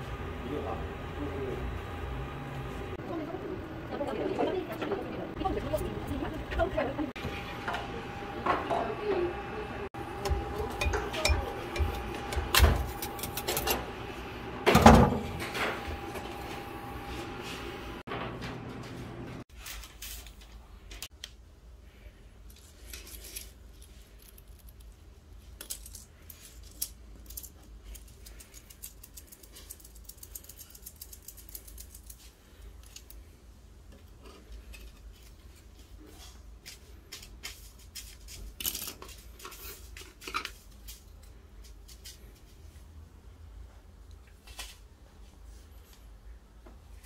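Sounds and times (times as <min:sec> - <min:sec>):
small objects clicking and rustling: 0:22.5 - 0:33.2.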